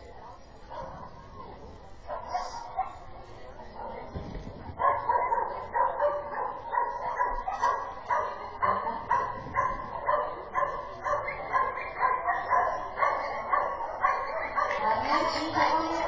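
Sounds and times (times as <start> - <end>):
dog barking: 0.7 - 1.1, 2.1 - 3.1, 4.8 - 16.0.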